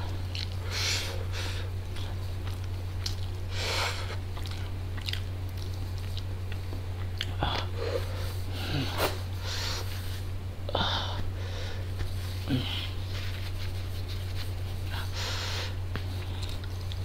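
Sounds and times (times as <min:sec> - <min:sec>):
chewing and mouth noises: 0:00.0 - 0:00.6, 0:01.9 - 0:07.8, 0:15.9 - 0:17.0
steady low hum: 0:00.0 - 0:17.0.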